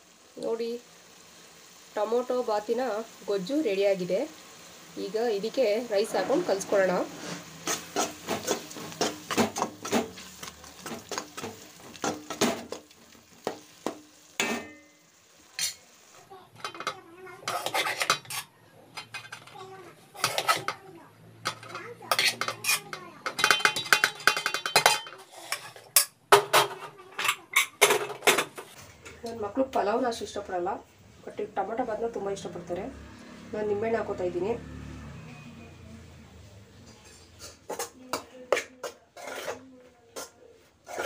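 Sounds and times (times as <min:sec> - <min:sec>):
metal spoon scraping metal pots: 0:06.0 - 0:12.8, 0:16.5 - 0:20.8, 0:21.4 - 0:29.4, 0:36.9 - 0:41.0.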